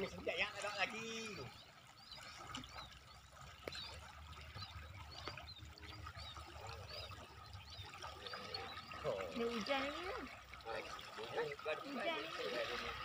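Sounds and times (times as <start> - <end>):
water sloshing around wading person: 0.0 - 13.0.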